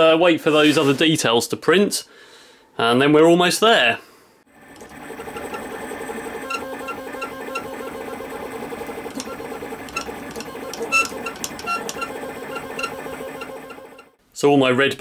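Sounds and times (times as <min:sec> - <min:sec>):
stepper motors whining: 0:04.6 - 0:14.2
printer head chirps and ticks: 0:04.8 - 0:08.0, 0:09.0 - 0:14.1.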